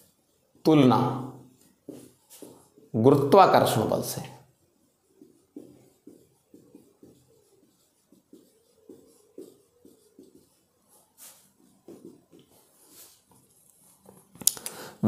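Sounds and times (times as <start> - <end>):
handwriting scratching: 4.5 - 14.2.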